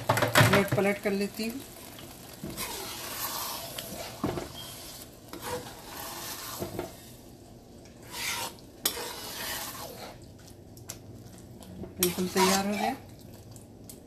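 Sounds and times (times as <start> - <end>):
meat sizzling: 0.0 - 13.0
spatula scraping frying pan: 2.3 - 7.3, 7.9 - 10.3, 12.0 - 13.0.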